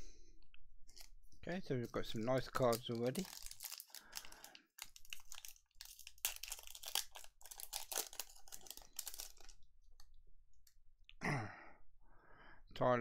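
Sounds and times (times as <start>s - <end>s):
trading cards rustling and clicking: 0.9s - 9.6s.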